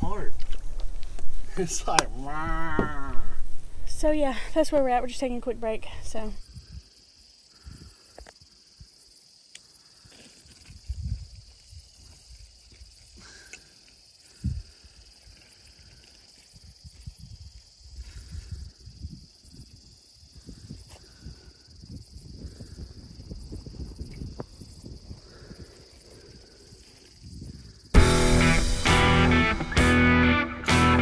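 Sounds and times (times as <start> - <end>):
wind rumbling on microphone: 0.0 - 6.9, 10.6 - 13.3, 14.3 - 27.9
high-pitched insect chorus: 0.0 - 29.5
low thump: 2.0 - 3.2.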